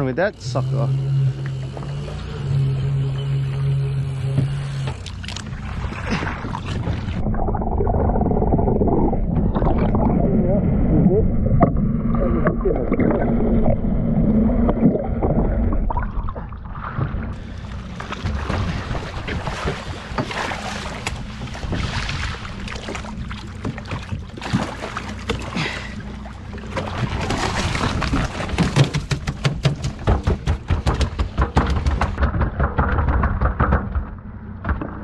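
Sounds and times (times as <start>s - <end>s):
outboard motor hum: 0.0s - 35.0s
water splashing: 1.4s - 31.4s
muffled underwater sound: 5.8s - 23.8s
crackling knocks: 28.5s - 35.0s.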